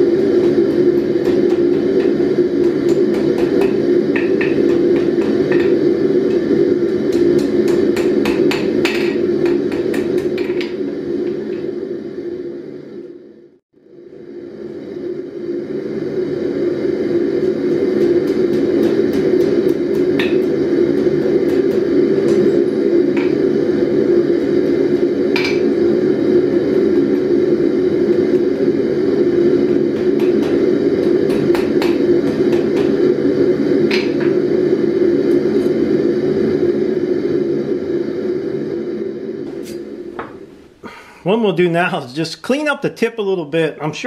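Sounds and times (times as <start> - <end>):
loud low drone: 0.0 - 40.9
hammer striking steel on anvil: 0.4 - 5.8, 7.1 - 10.7.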